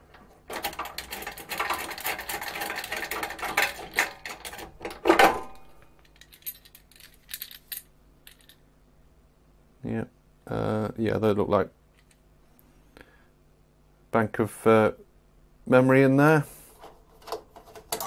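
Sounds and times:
metal rattling and scraping: 0:00.1 - 0:05.4.

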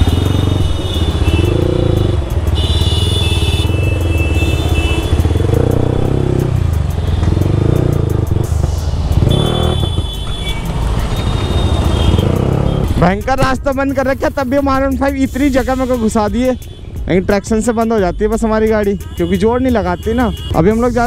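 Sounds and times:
motorcycle engine running: 0:00.0 - 0:13.5.

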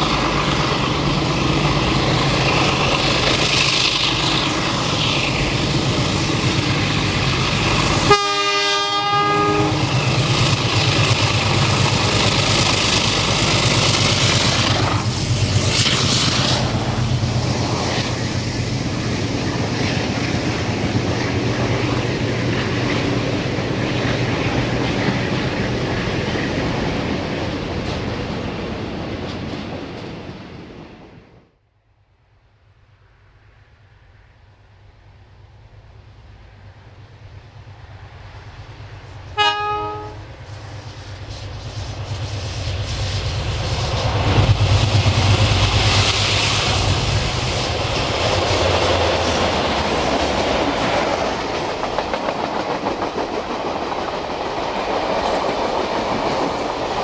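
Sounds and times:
diesel locomotive engine: 0:00.0 - 0:57.0
rail noise: 0:00.0 - 0:57.0
train horn blast: 0:08.0 - 0:09.9, 0:39.4 - 0:40.3.

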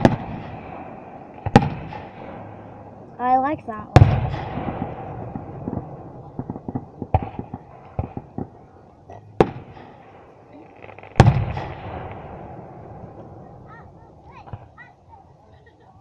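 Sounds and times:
firework pops and crackle: 0:00.0 - 0:00.7, 0:01.4 - 0:02.3, 0:04.0 - 0:12.3
firework shells bursting: 0:00.0 - 0:02.9.

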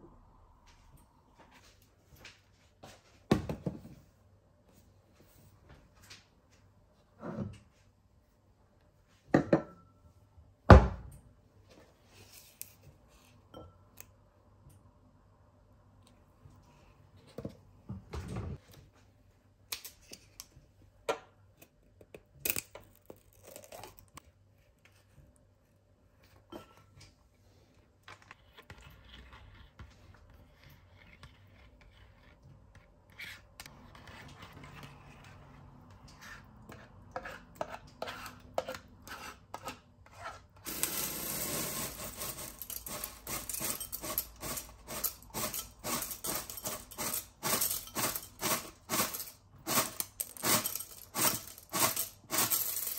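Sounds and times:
objects being handled: 0:40.1 - 0:52.9.

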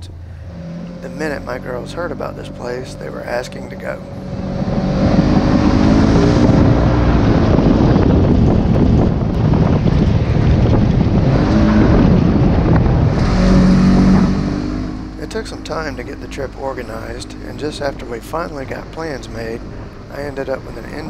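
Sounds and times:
engine accelerating under load: 0:00.0 - 0:21.0
wind on microphone: 0:03.8 - 0:21.0.

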